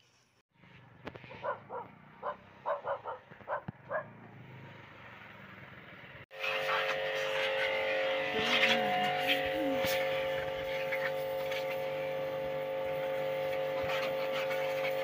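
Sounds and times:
dog barking: 1.3 - 4.2
machine hum with hiss: 6.4 - 15.0.

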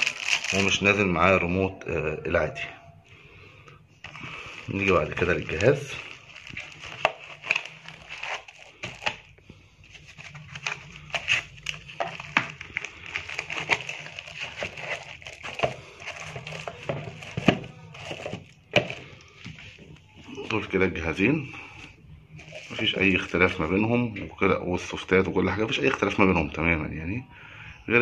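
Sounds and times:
crinkling plastic: 0.0 - 1.1, 4.0 - 20.1, 22.3 - 23.8.

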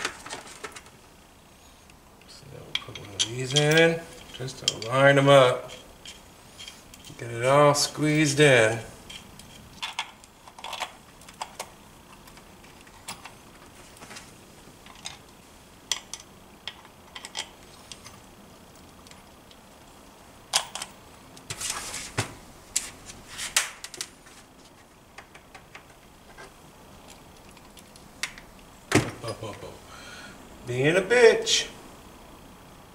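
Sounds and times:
metal parts clicking and clinking: 2.7 - 7.2, 9.0 - 13.4, 15.9 - 18.2, 20.5 - 21.0.

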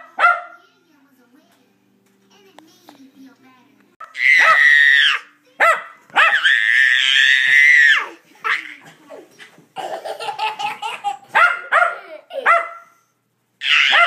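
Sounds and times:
small dog barking and yipping: 0.0 - 0.6, 4.3 - 7.3, 11.3 - 13.0, 13.6 - 14.0
toddler screaming: 4.0 - 5.3, 6.2 - 8.7, 13.6 - 14.0.

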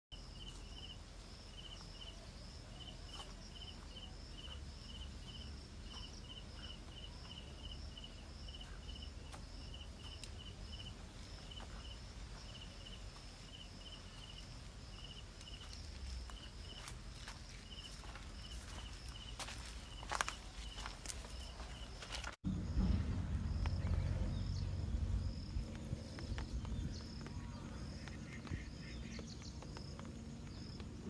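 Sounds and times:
insects chirping: 0.1 - 31.0.

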